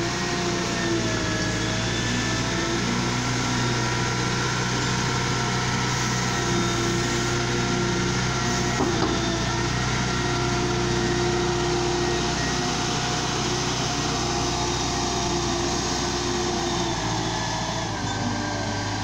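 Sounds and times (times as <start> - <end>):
diesel engine under load: 0.0 - 19.0
brief knock: 8.8 - 9.3.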